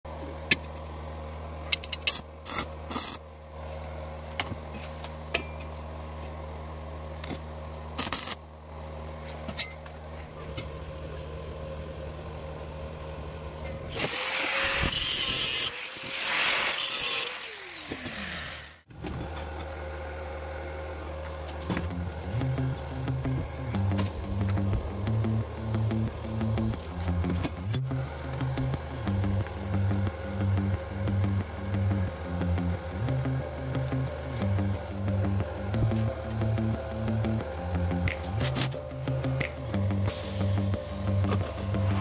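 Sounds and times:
power tool grinding metal: 13.9s - 18.8s
low hum: 19.1s - 42.0s.

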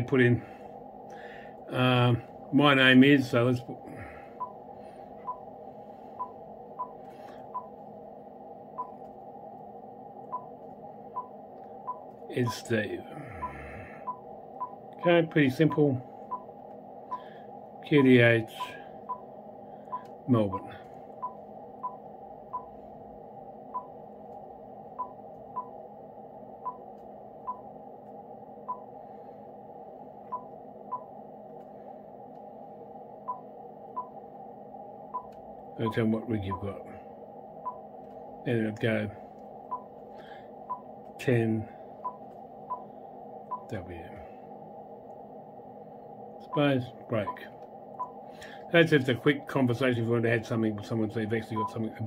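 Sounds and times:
faint steady hiss: 0.0s - 5.0s
steady low hiss: 0.0s - 52.0s.

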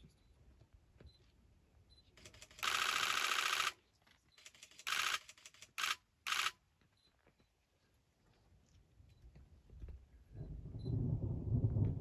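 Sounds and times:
camera shutter clicks: 2.2s - 3.8s, 4.4s - 6.6s.

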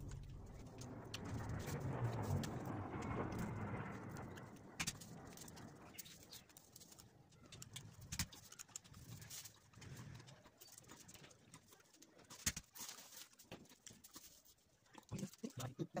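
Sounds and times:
paper kite handling: 10.6s - 15.6s.

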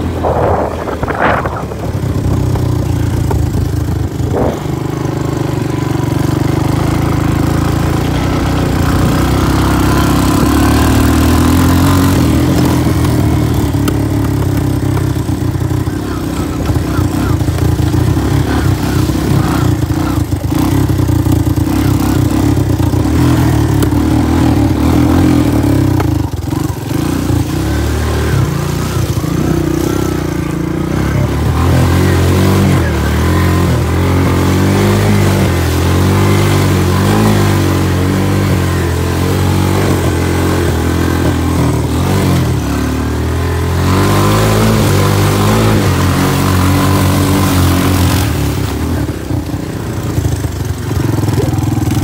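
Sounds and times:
quad bike engine running: 0.0s - 52.0s.

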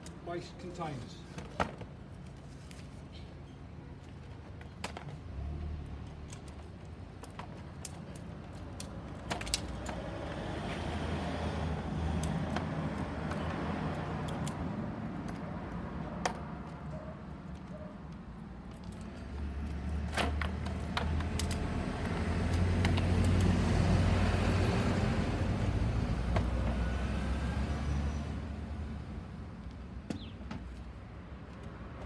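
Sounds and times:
vehicle passing: 9.6s - 17.4s, 18.9s - 30.0s.

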